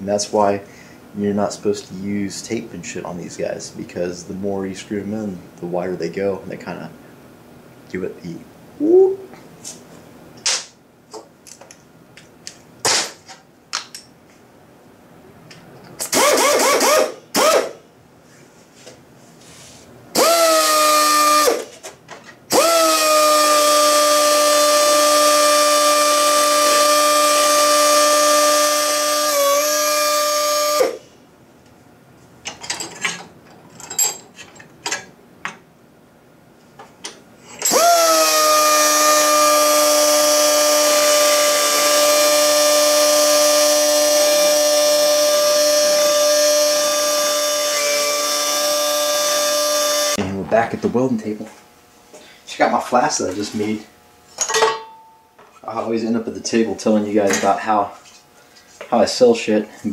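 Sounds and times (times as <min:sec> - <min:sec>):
pneumatic die grinder whining: 0:16.0 - 0:17.8, 0:20.1 - 0:21.7, 0:22.5 - 0:31.0, 0:37.6 - 0:50.2.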